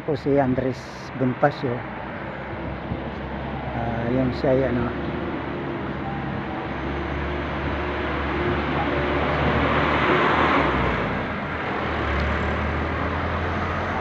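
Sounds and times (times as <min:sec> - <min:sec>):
motorcycle passing: 0:04.8 - 0:14.0.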